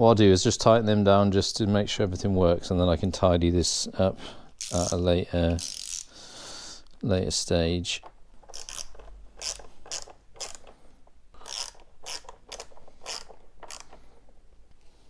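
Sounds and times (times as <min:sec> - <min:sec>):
hand ratchet clicking: 0:05.6 - 0:06.1, 0:08.4 - 0:10.8, 0:11.4 - 0:14.0.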